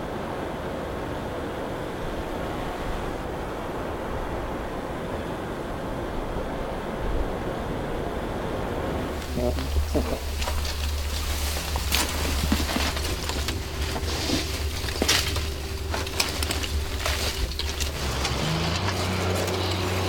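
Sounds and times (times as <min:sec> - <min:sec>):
steady low hum: 0:01.4 - 0:20.0
debris crunching and clinking: 0:09.2 - 0:20.0.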